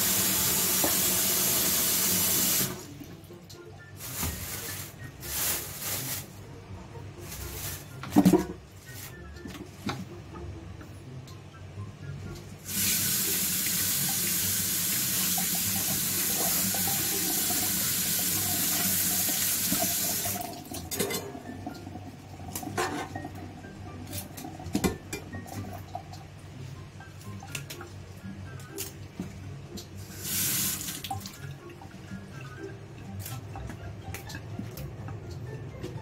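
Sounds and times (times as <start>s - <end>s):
knife and greens clattering in sink: 20.8s - 21.4s, 22.6s - 23.3s.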